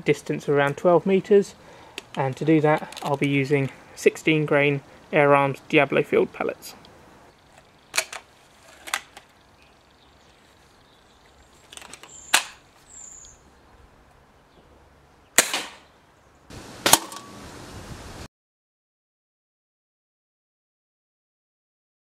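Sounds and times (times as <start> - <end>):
air rifle handling clicks: 1.9 - 3.8, 7.5 - 9.4, 11.6 - 13.4
air rifle firing crack: 15.4 - 15.9, 16.8 - 17.3.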